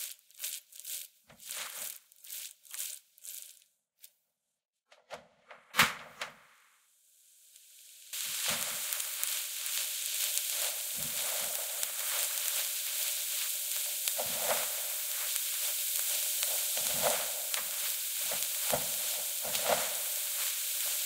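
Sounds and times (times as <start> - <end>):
dough sizzling in saucepan: 0.0 - 3.8, 7.0 - 21.0.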